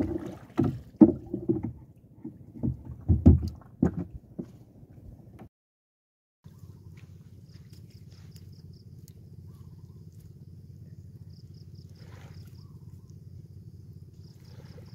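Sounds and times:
insect chirping: 6.5 - 14.9
steady low rumble: 6.5 - 14.9.

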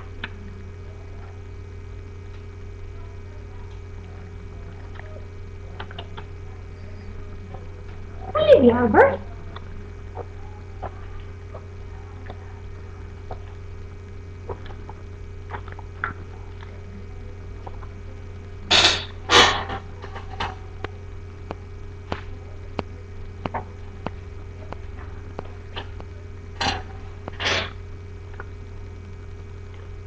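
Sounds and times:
steady low hum: 0.0 - 30.0
faint ticks and clicks: 20.1 - 27.4.

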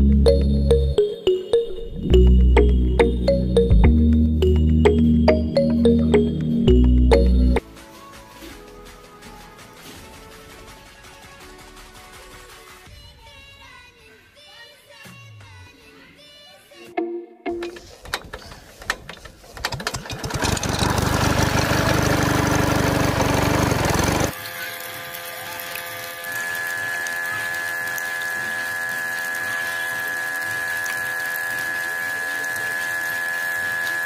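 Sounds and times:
pump motor high whine: 20.1 - 34.0
small electric pump motor running: 20.2 - 34.0.

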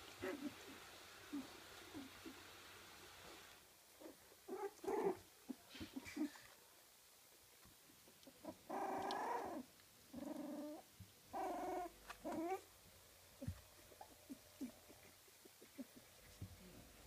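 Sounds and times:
puppy whining: 0.2 - 2.4, 4.0 - 6.6, 8.1 - 12.7, 13.4 - 16.8.

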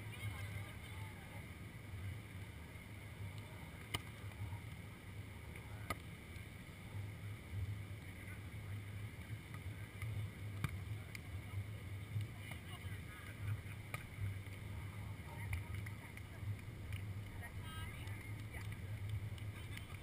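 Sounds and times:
faint sharp clicks: 9.5 - 11.3, 15.4 - 17.4.

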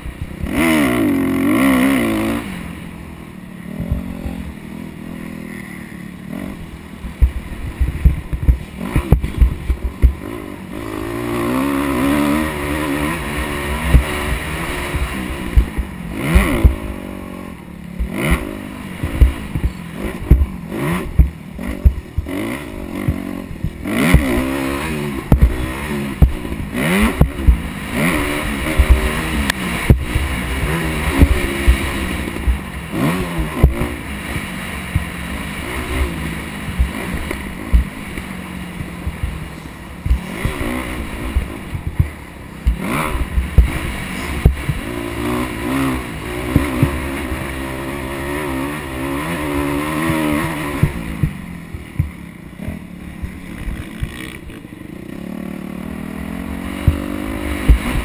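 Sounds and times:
dirt bike engine revving: 0.0 - 58.0
wind buffeting microphone: 7.0 - 10.4.

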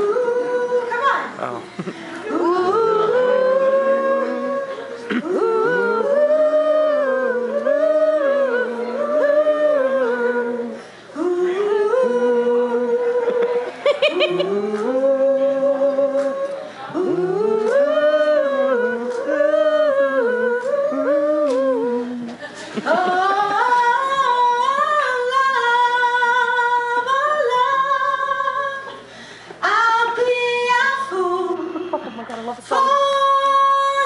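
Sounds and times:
woman singing unaccompanied: 0.0 - 1.4, 2.2 - 29.0, 29.6 - 34.0.

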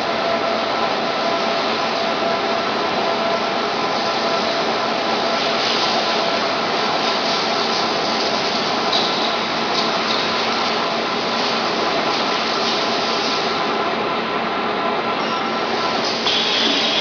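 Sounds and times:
factory machinery hiss: 15.6 - 17.0.

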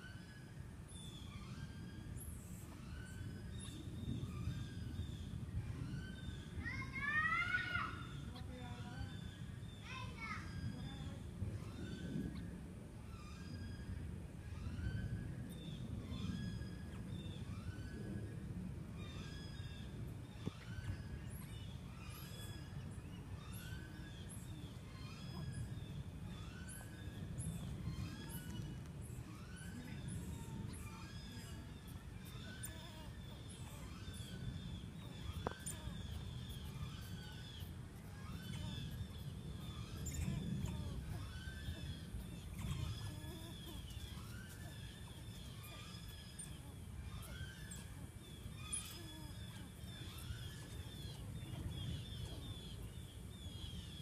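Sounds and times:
low rumble of background noise: 0.0 - 54.0
birds chirping: 13.1 - 54.0
rising whistled calls: 19.0 - 54.0.

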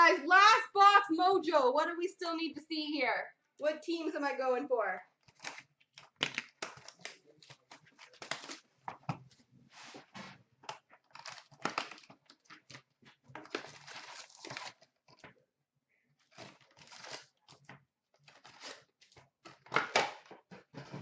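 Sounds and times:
wrappers crinkling and tearing: 5.2 - 9.0, 10.7 - 15.2, 16.2 - 17.6.

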